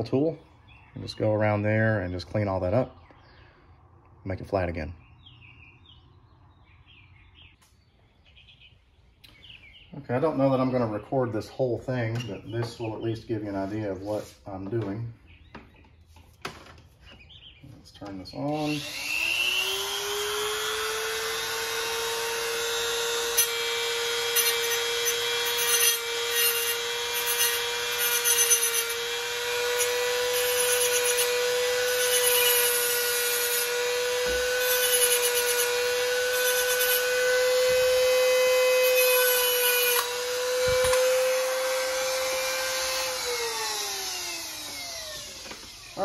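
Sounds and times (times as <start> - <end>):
rotary tool high whine: 18.2 - 46.0
grinding wheel rasping on metal: 18.5 - 46.0.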